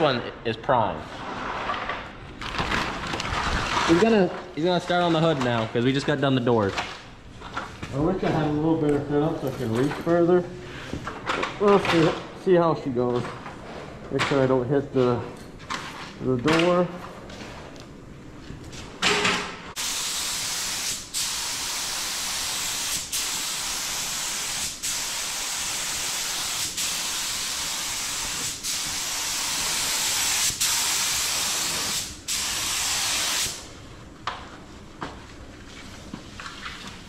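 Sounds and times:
paint spray gun hissing: 19.8s - 33.6s.

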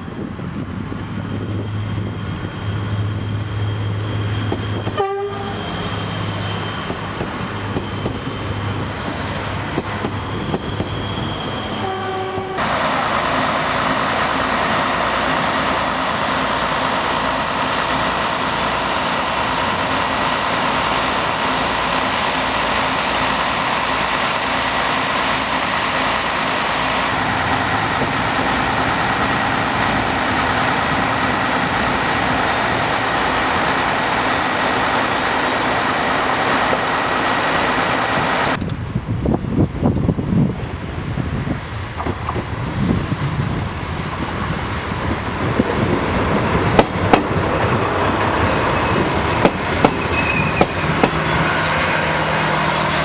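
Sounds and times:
diesel train engines humming: 0.0s - 53.0s
train horn blasts: 4.9s - 5.7s, 11.8s - 12.6s
diesel railcar idling: 12.5s - 53.0s
high-pitched whine: 12.6s - 34.0s.

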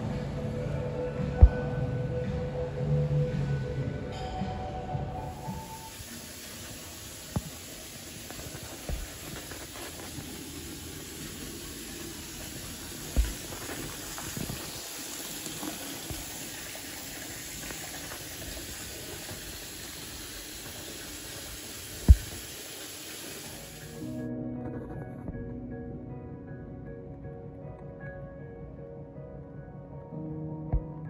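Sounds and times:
water pouring into a tub: 5.4s - 24.0s.

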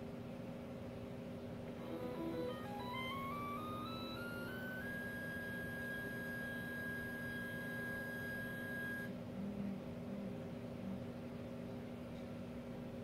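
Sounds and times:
electric motor high whine: 1.8s - 9.1s.

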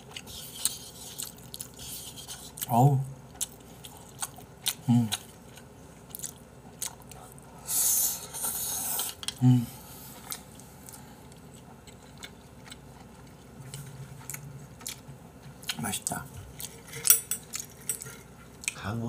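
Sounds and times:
wet chewing and smacking: 0.0s - 7.5s, 10.2s - 18.8s
person humming: 9.3s - 9.9s.

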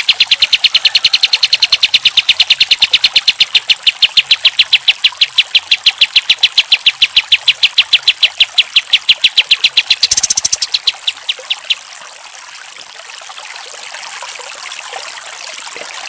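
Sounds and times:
bird calling sharp repeated notes: 0.0s - 11.8s.

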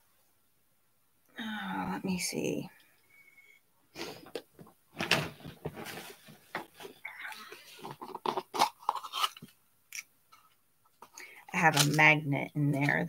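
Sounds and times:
rummaging small objects: 5.0s - 9.5s.

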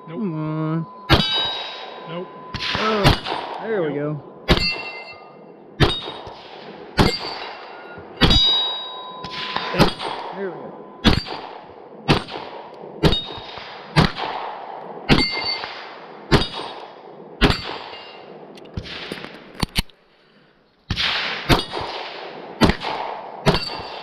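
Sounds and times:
steel target clanging: 0.8s - 13.7s, 15.1s - 19.2s, 23.5s - 24.0s
pistol shots: 1.1s - 5.2s, 5.8s - 19.8s, 20.9s - 24.0s.

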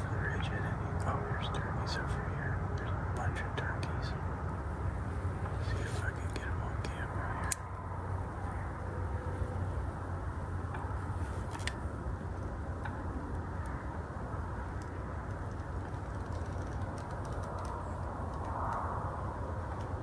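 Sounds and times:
low outdoor rumble: 0.0s - 20.0s
faint clicks: 5.4s - 7.8s, 14.8s - 18.9s.

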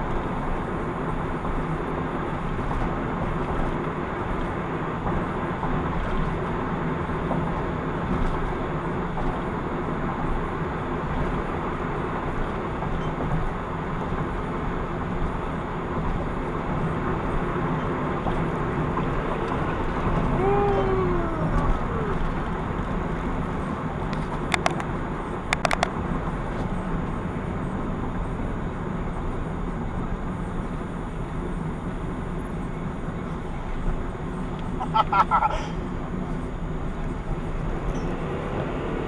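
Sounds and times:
vehicle road and engine noise: 0.0s - 39.0s
sharp clicks: 24.5s - 24.9s, 25.5s - 26.0s.

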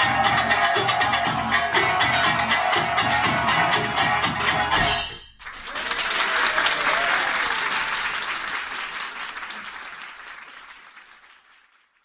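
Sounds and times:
music: 0.0s - 5.4s
audience applause: 5.4s - 12.0s
audience shouts: 5.7s - 8.0s.

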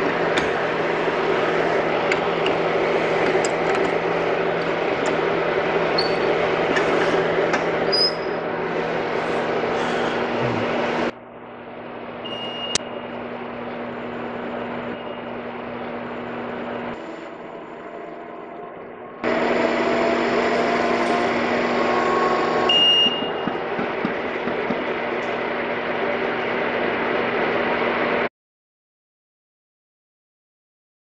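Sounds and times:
bar feeder mechanical hum: 0.0s - 28.3s
short high beep: 22.7s - 23.4s.

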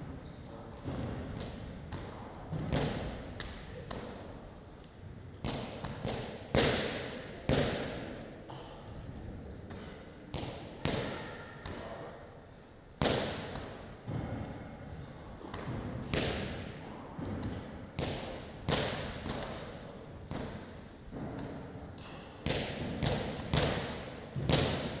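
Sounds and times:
medicine ball hitting wall: 15.5s - 19.6s, 22.4s - 25.0s.

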